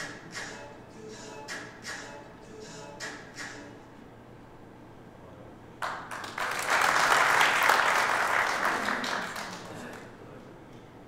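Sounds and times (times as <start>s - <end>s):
audience applauding: 5.8s - 10.1s.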